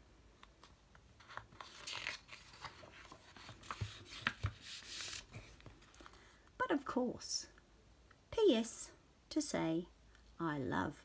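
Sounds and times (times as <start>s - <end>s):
paper rustling: 0.4s - 6.2s.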